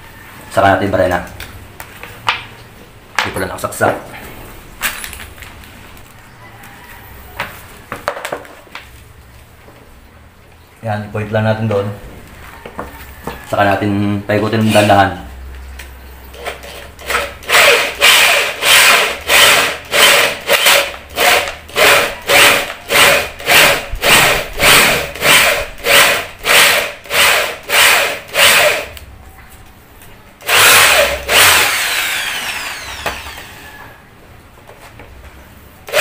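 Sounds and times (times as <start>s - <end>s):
power drill boring into wood: 16.4s - 29.0s, 30.4s - 33.8s.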